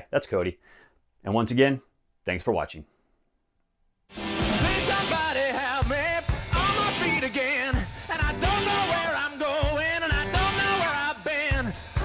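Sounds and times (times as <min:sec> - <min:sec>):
rock song with singing: 0:04.1 - 0:12.0
steady drum beat: 0:04.1 - 0:12.0.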